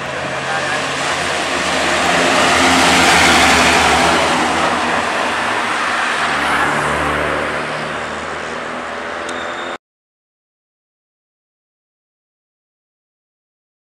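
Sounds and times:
truck passing by: 0.0 - 9.8.

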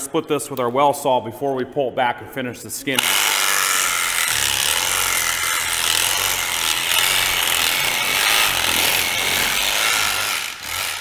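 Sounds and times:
electric saw cutting bone: 3.0 - 11.0.

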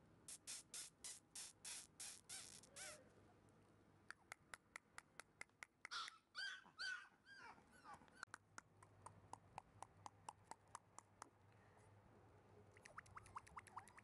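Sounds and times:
small squeaky clicks: 0.3 - 3.1, 7.8 - 8.4
puppy whimpering: 5.9 - 8.3.

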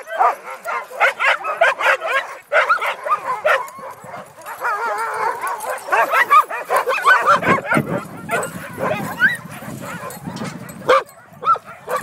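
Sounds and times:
dogs barking and yipping: 0.0 - 12.0
dogs howling: 0.0 - 12.0.

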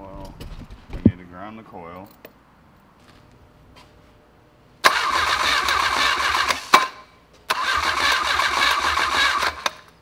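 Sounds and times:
starter motor cranking engine: 4.8 - 6.8, 7.5 - 9.9.

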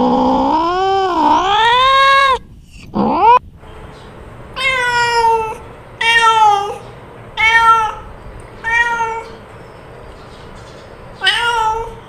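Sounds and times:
cat meowing: 0.0 - 2.4, 4.6 - 9.4, 11.2 - 12.0.

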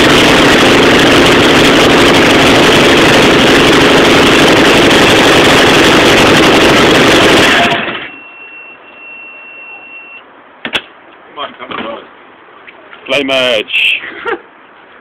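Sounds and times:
air-cooled engine running: 0.0 - 8.5.

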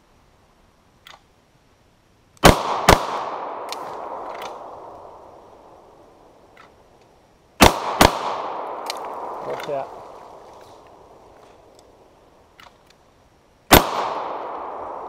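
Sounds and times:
pistol shots echoing: 2.4 - 5.5, 7.6 - 10.4, 13.7 - 15.0.

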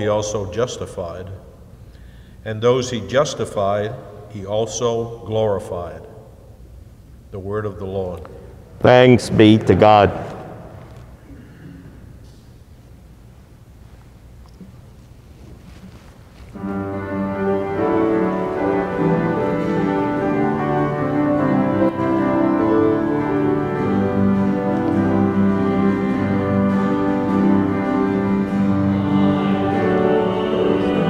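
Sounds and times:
church organ chords: 0.0 - 1.6, 16.5 - 31.0.

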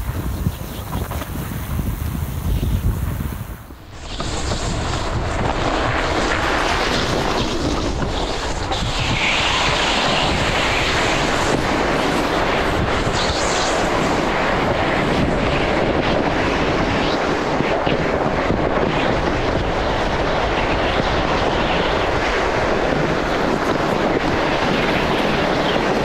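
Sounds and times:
wind noise on microphone: 0.0 - 26.0.

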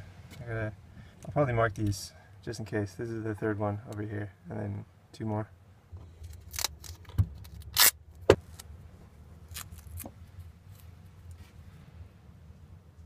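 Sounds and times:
low steady hum: 0.0 - 13.0
duct tape ripping: 6.3 - 8.6, 9.5 - 10.1.

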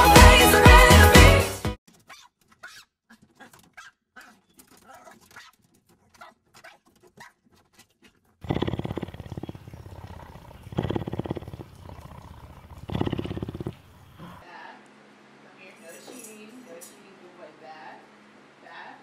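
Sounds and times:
small dog yapping: 2.0 - 7.4, 8.0 - 14.4
cougar purring: 8.4 - 14.4.

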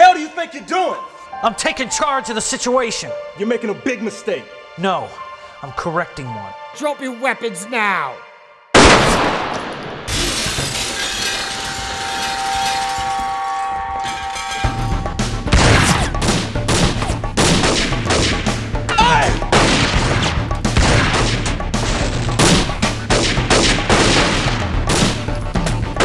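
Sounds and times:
rapid handgun fire: 8.8 - 9.8, 16.7 - 18.6, 19.5 - 25.2
background music with low bass: 13.7 - 26.0.

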